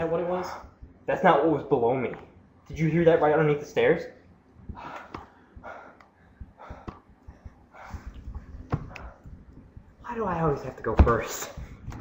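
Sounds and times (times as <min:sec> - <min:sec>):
breathy puffs: 0:04.6 - 0:10.0.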